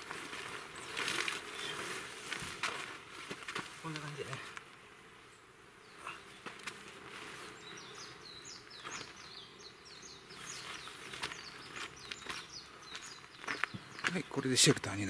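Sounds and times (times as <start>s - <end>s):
bird chirping: 0.5s - 1.9s, 5.2s - 6.5s, 7.3s - 15.0s.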